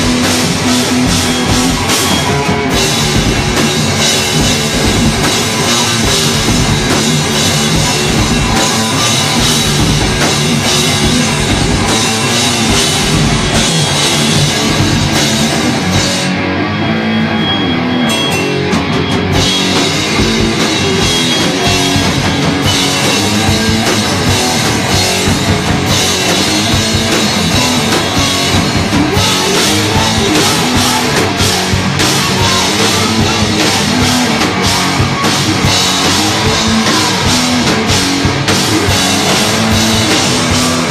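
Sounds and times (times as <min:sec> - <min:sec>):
live heavy rock band: 0:00.0 - 0:40.9.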